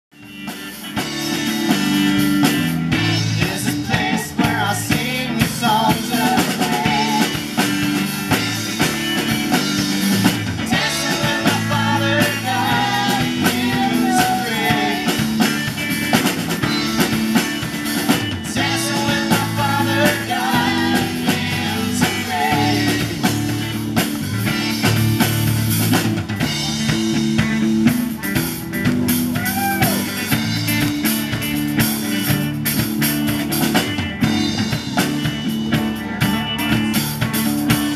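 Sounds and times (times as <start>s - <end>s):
drum kit: 0.1s - 37.9s
electric guitar: 0.1s - 37.9s
women singing: 3.4s - 7.6s, 10.6s - 15.5s, 18.4s - 23.4s.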